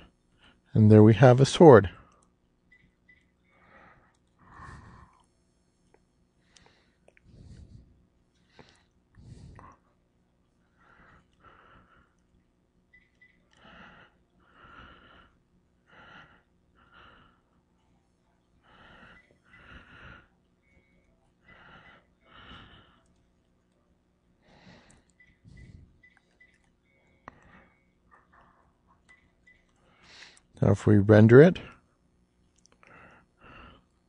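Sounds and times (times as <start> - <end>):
faint steady hum: 0.0 - 34.0
person breathing close to microphone: 3.5 - 5.3, 6.4 - 9.8, 18.6 - 20.4, 21.4 - 23.1, 24.4 - 26.0.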